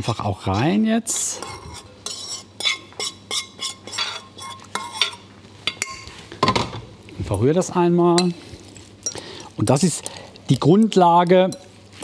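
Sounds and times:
metal spoon scraping pan: 0:00.0 - 0:05.2.

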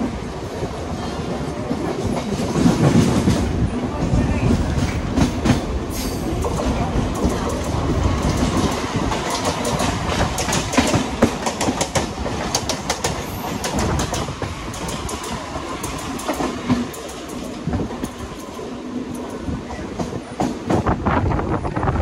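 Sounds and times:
train wheels rumbling on rail: 0:00.0 - 0:22.0
wheels clacking over rail joints: 0:04.1 - 0:20.9.

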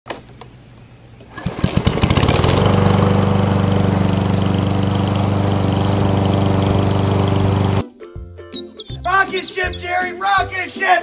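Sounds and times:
lawn mower engine starting: 0:01.2 - 0:07.8.

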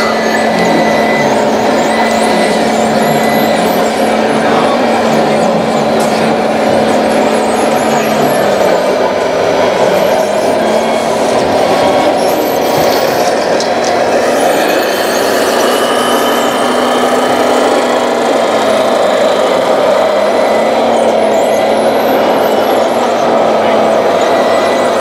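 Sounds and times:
model vehicle engines running: 0:00.0 - 0:25.0.

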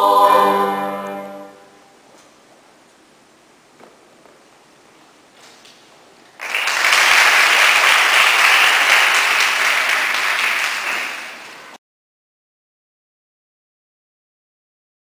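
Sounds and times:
audience applause: 0:06.4 - 0:11.8.

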